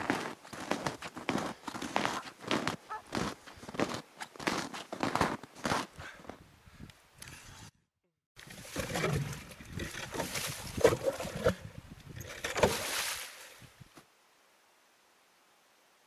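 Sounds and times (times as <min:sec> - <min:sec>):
ice auger grinding through ice: 0:08.4 - 0:13.2.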